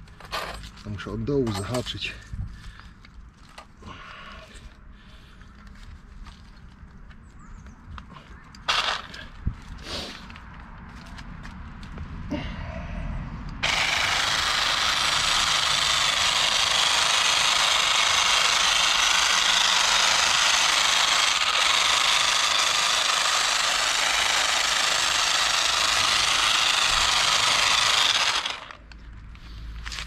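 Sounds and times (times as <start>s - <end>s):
hedge trimmer running: 8.7s - 9.2s, 13.6s - 28.9s.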